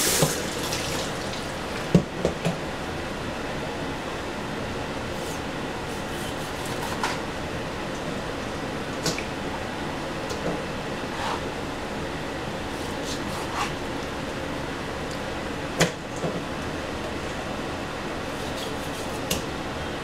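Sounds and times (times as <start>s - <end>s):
steady background hum: 0.0s - 20.0s
knife cutting raw meat: 5.2s - 7.2s, 12.7s - 13.8s, 18.3s - 19.4s.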